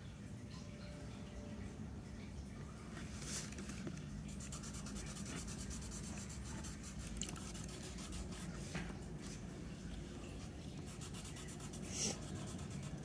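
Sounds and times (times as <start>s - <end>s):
marker scratching on paper: 4.4s - 8.6s, 10.8s - 13.0s.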